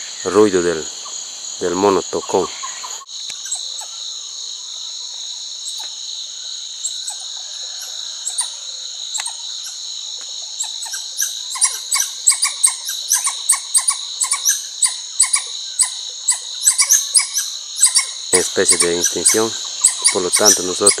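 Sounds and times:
high-pitched insect drone: 0.0s - 21.0s
monkeys calling: 10.6s - 21.0s.

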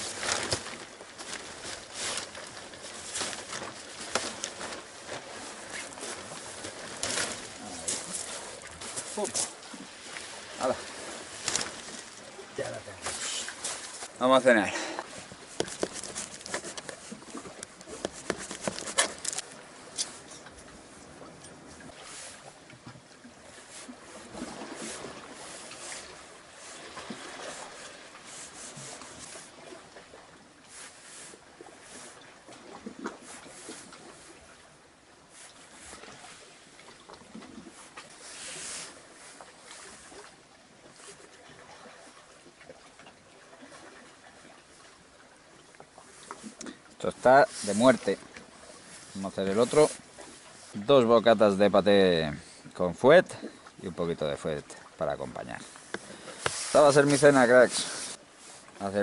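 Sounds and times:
tent fabric rustling: 0.0s - 9.5s, 56.4s - 58.2s.

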